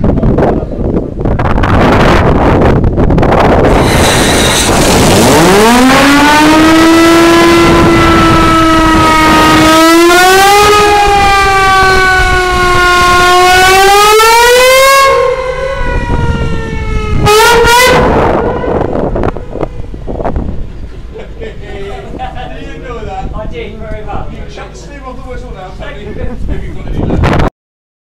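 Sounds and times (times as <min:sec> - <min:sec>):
steam foghorn blasts: 0:03.6 - 0:20.0.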